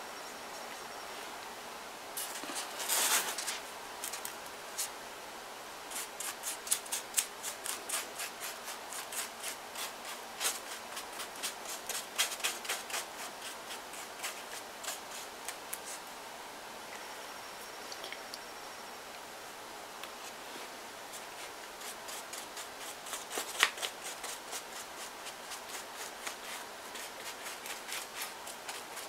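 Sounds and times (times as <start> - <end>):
newspaper crinkling and rustling: 2.2 - 4.9, 21.2 - 29.0.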